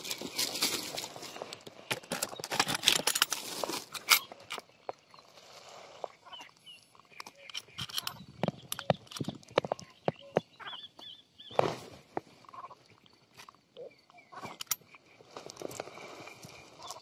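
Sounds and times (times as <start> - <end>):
plastic bag rustling and crinkling: 0.0 - 4.1
sharp clicks and knocks: 7.2 - 10.5.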